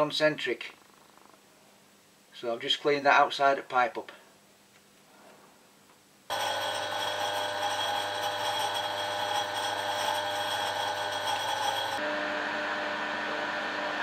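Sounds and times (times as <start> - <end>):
lathe running with gear whine: 6.3 - 14.0.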